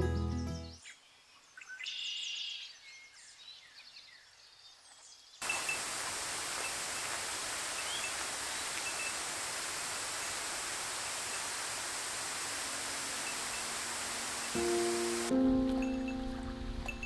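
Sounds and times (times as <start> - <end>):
running water rushing: 5.4 - 17.0
birds chirping: 7.6 - 17.0.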